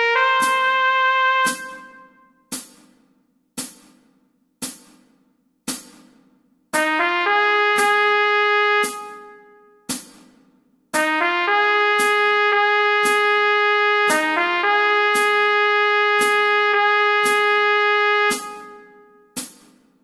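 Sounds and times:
trumpet melody: 0:00.0 - 0:02.4, 0:06.8 - 0:09.9, 0:11.0 - 0:19.4.

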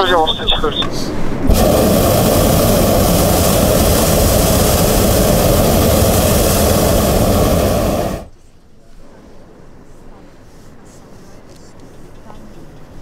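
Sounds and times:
propane burner blast: 0:01.4 - 0:08.3.

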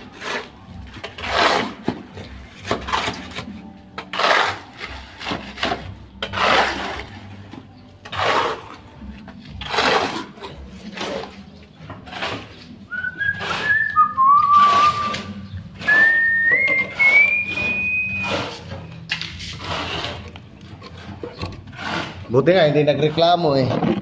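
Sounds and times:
shovel scraping cement mix: 0:00.0 - 0:24.0.

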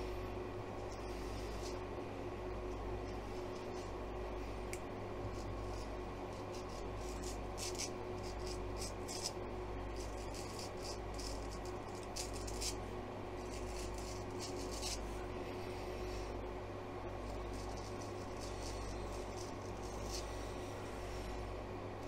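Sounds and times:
clothes dryer fan hum: 0:00.0 - 0:22.0
razor scraping stubble: 0:05.3 - 0:12.8, 0:13.4 - 0:15.1, 0:17.2 - 0:21.0.

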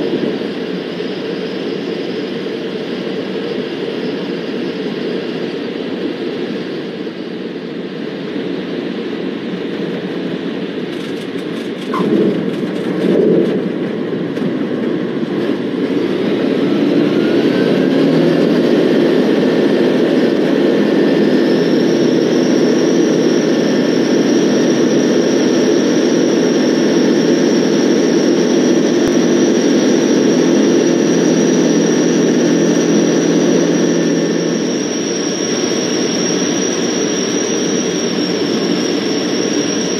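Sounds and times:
aircraft engine and propeller: 0:00.0 - 0:39.9
thin high whine: 0:15.1 - 0:39.9.

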